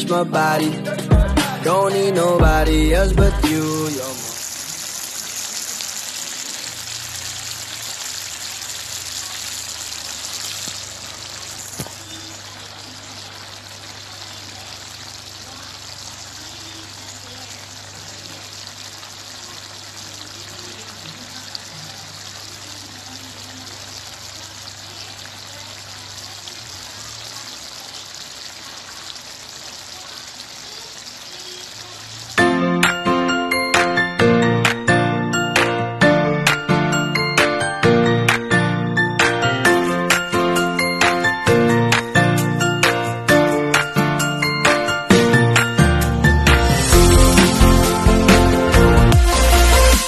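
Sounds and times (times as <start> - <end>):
pot simmering and bubbling: 4.0 - 33.0.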